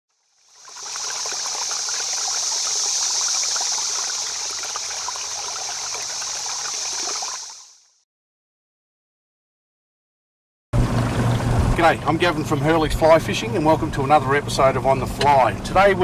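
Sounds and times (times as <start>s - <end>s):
trickling water: 0.2s - 8.0s, 10.8s - 13.2s.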